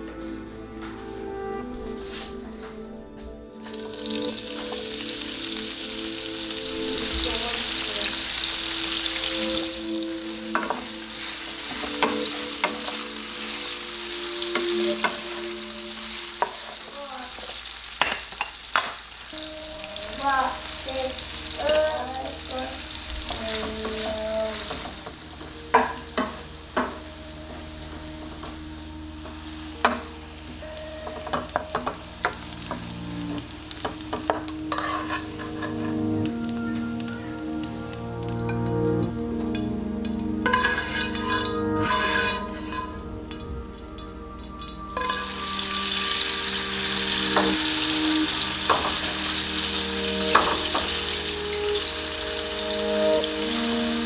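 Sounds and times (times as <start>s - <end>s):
onions sizzling in a skillet: 3.6s - 54.0s
wooden spoon knocking a pan: 25.7s - 27.0s.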